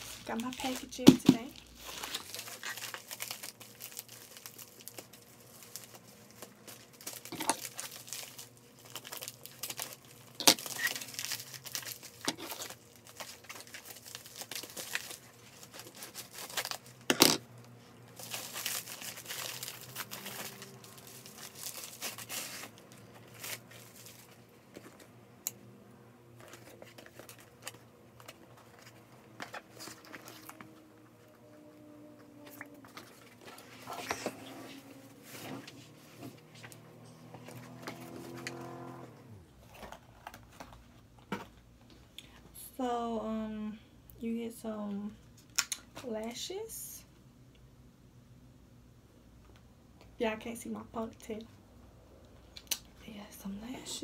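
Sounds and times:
plastic mailer crinkling and tearing: 0:00.0 - 0:17.5, 0:18.1 - 0:25.1, 0:26.3 - 0:30.8, 0:32.4 - 0:34.3, 0:36.6 - 0:41.3.

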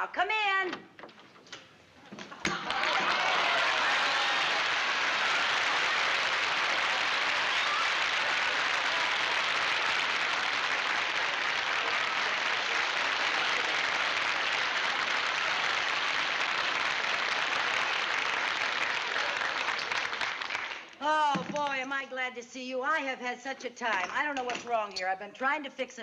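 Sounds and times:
audience applauding: 0:02.4 - 0:21.0.

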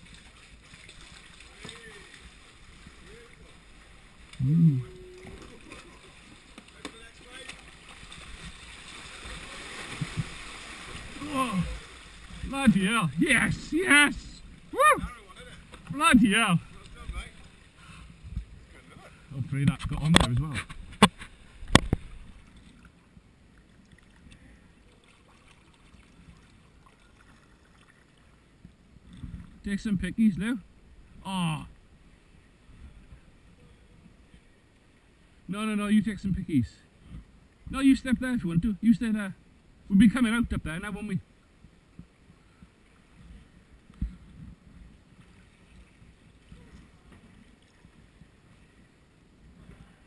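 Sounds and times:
sea water lapping and trickling: 0:00.0 - 0:19.4, 0:20.1 - 0:29.6, 0:41.2 - 0:50.0
paddle strokes: 0:00.0 - 0:23.0
small drips and ticks: 0:21.1 - 0:29.3.

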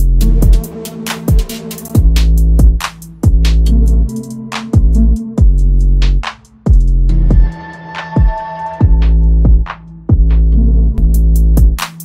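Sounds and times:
electronic music with booming bass drum: 0:00.0 - 0:12.0.

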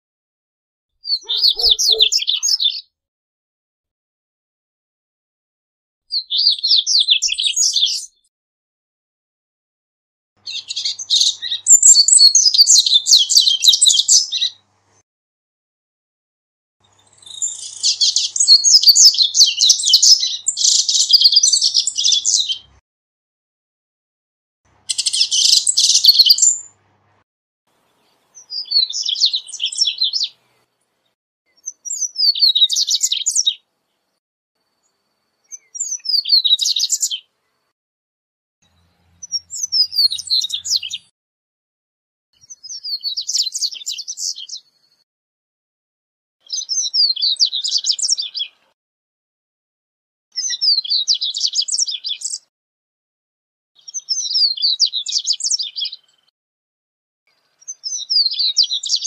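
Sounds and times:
bird twittering song: 0:01.0 - 0:02.9, 0:06.1 - 0:08.3, 0:10.4 - 0:14.6, 0:16.8 - 0:22.7, 0:24.8 - 0:26.8, 0:27.8 - 0:30.8, 0:31.5 - 0:37.7, 0:38.6 - 0:41.1, 0:42.4 - 0:45.0, 0:46.4 - 0:48.7, 0:50.4 - 0:52.5, 0:53.8 - 0:56.3, 0:57.3 - 0:59.0.

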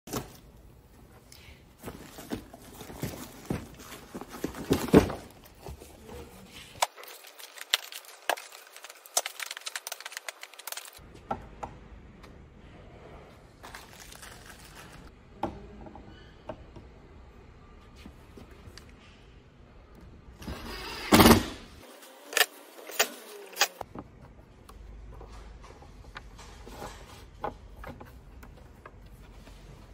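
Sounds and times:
packaging rustling: 0:01.8 - 0:11.0.

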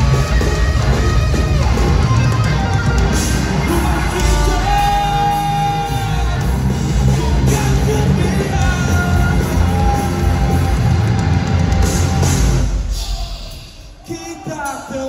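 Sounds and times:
live rock band playing: 0:00.0 - 0:15.0
singer holding long notes: 0:03.4 - 0:12.2.

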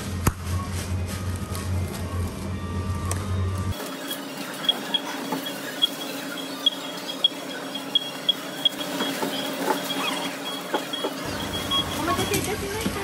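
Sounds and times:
barcode scanner beeping: 0:03.8 - 0:12.7.

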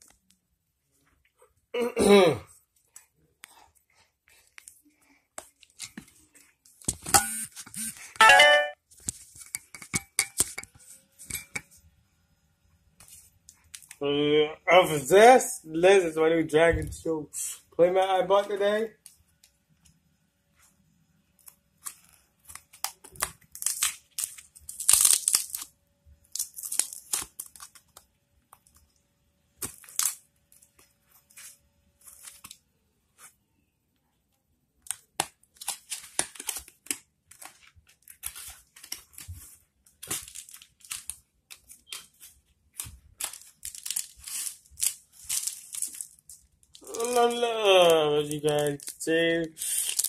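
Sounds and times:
plastic wrapping tearing and crinkling: 0:21.8 - 0:28.0, 0:29.6 - 0:30.8, 0:34.8 - 0:50.0.

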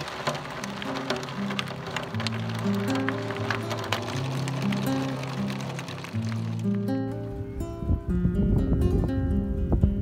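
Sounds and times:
background music with low notes: 0:00.7 - 0:10.0.

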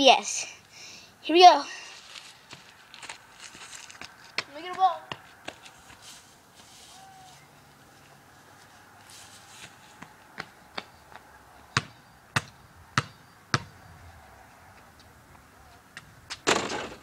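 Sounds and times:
basketball bouncing on concrete: 0:04.4 - 0:05.3, 0:10.4 - 0:10.9, 0:11.7 - 0:13.8
ball hitting hoop: 0:16.4 - 0:17.0.

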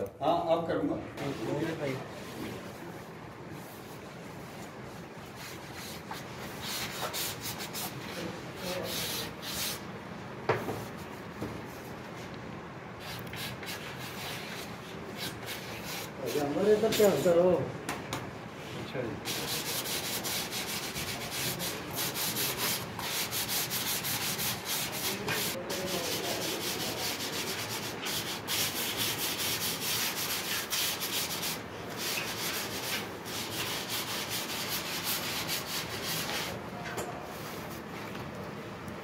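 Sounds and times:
hand sanding clay: 0:05.2 - 0:09.8, 0:13.0 - 0:17.4, 0:19.2 - 0:36.6.

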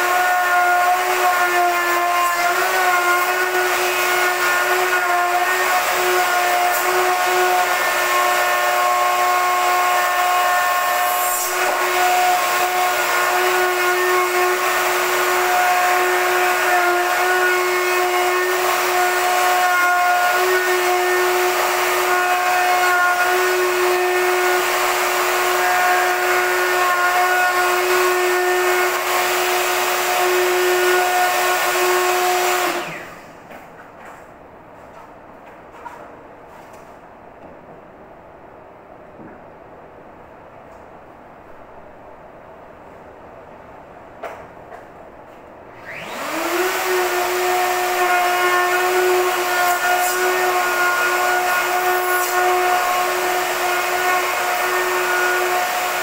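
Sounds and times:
electric router whining: 0:11.6 - 0:33.2, 0:45.8 - 0:56.0.

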